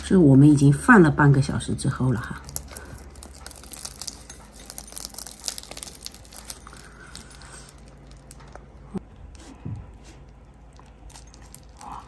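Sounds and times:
bun crust crackling: 0:02.0 - 0:12.0.

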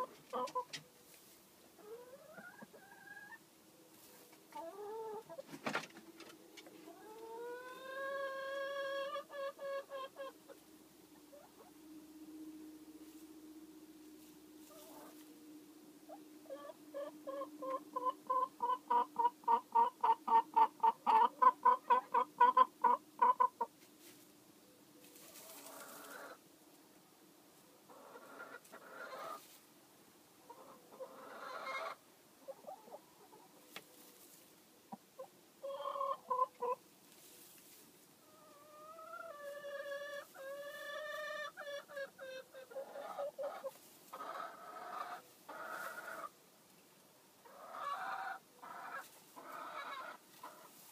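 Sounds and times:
hen clucking: 0:00.0 - 0:01.2, 0:01.8 - 0:03.4, 0:04.0 - 0:11.9, 0:14.6 - 0:15.4, 0:16.1 - 0:23.8, 0:25.1 - 0:26.4, 0:27.9 - 0:29.6, 0:30.4 - 0:36.9, 0:38.2 - 0:46.4, 0:47.4 - 0:50.9
straw rustling: 0:25.0 - 0:26.3.

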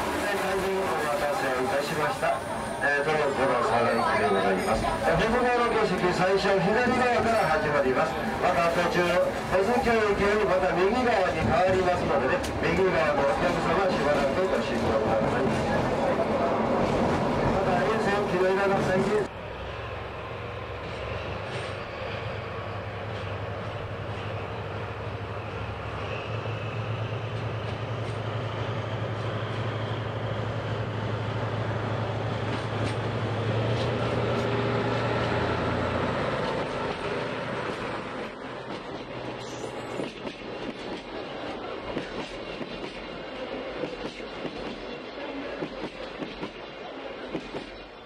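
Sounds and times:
diesel locomotive drone: 0:00.0 - 0:48.0
train wheels clicking over rail joints: 0:36.3 - 0:43.2.

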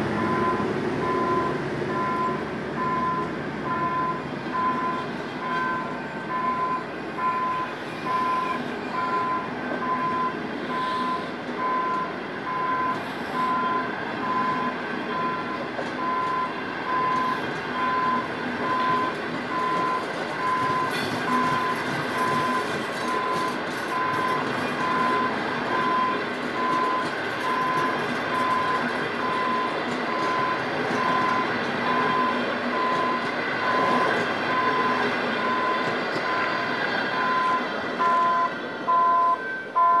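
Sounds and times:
level-crossing warning beeps: 0:00.0 - 0:40.0
train coaches clattering on rails: 0:00.0 - 0:40.0
two-tone beeps: 0:37.2 - 0:40.0.

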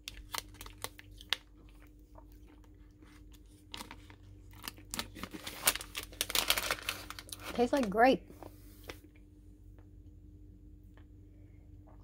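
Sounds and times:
chewing crackles: 0:00.0 - 0:05.3
candy crunch: 0:00.0 - 0:08.1.

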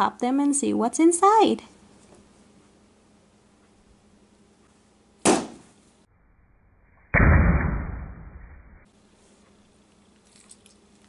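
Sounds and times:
balloon pop: 0:05.2 - 0:05.6
muffled bang with rumble: 0:07.2 - 0:08.8.

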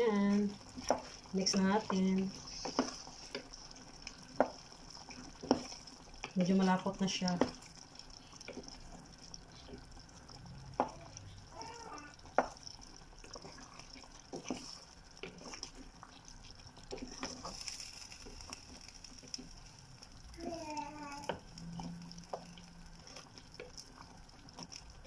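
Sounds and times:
sauce simmering hiss: 0:00.0 - 0:25.0
wooden spatula stirring stew: 0:00.0 - 0:25.0.

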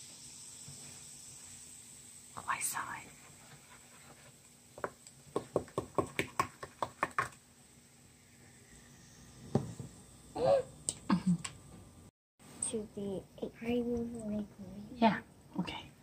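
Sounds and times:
thump: 0:09.5 - 0:10.0.

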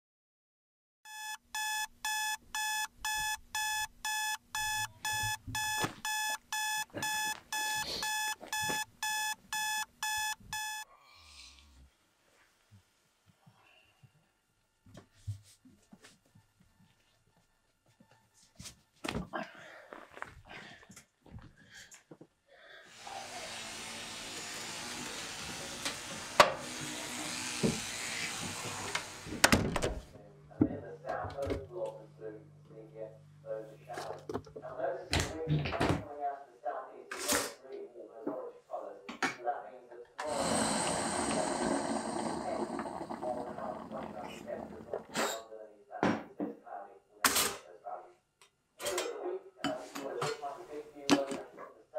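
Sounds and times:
electronic alarm beeping: 0:01.1 - 0:10.9
electric grooming appliance buzzing: 0:22.9 - 0:29.4, 0:40.2 - 0:44.2.

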